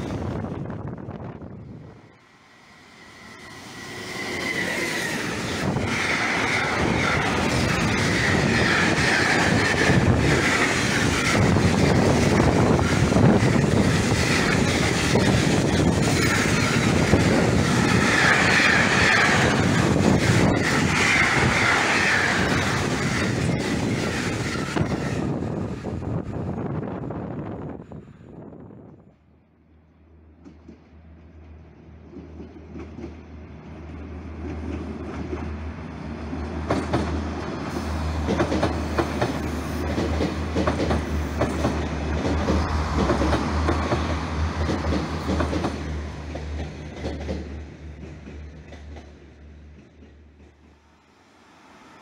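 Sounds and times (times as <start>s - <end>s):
high wheel squeal: 2.3s - 25.6s
train wheels clattering over rails: 4.7s - 25.8s, 36.5s - 51.0s.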